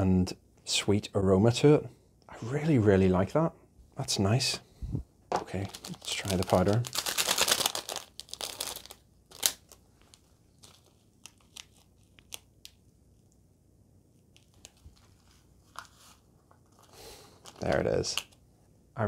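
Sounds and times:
plastic sachet crinkling: 5.4s - 12.8s, 14.3s - 18.4s
sachet snapping open: 5.6s - 12.8s.

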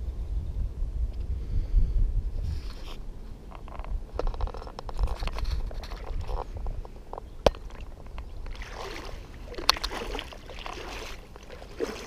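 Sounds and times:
water sloshing and splashing: 7.5s - 12.0s.

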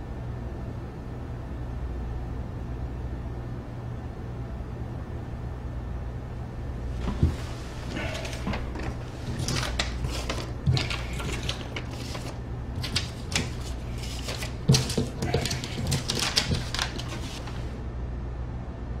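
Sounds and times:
steady low hum: 0.0s - 19.0s
paper and plastic litter rustling: 6.9s - 17.8s.

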